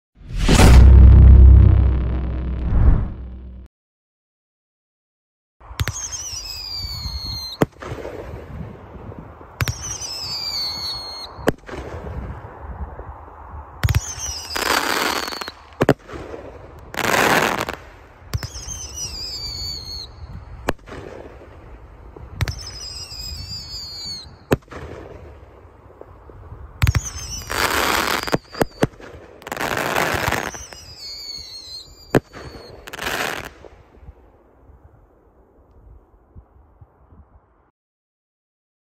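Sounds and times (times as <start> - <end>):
firework whistles falling in pitch: 5.8 - 7.7, 9.6 - 11.5, 13.8 - 15.7, 18.3 - 20.6, 22.4 - 24.6, 26.8 - 33.5
firework crackle: 13.8 - 33.9.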